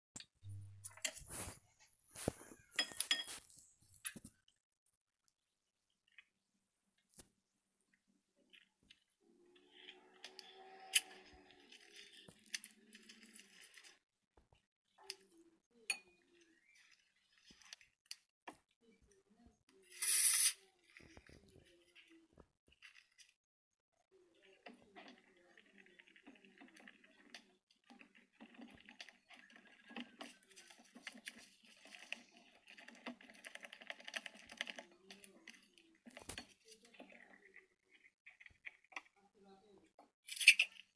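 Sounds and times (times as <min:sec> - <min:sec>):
spatula stirring sticky slime: 0:08.5 - 0:23.3, 0:24.0 - 0:40.9
crinkly hiss: 0:09.6 - 0:14.0, 0:24.4 - 0:38.5.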